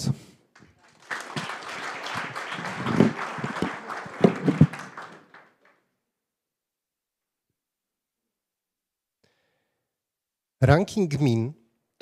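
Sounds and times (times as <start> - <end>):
audience applauding: 0.5 - 5.8.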